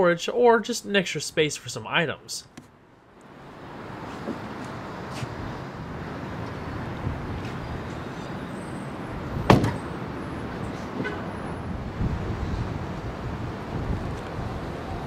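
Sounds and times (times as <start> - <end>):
steady background noise: 0.0 - 15.0
car trunk lid thud: 9.5 - 9.8.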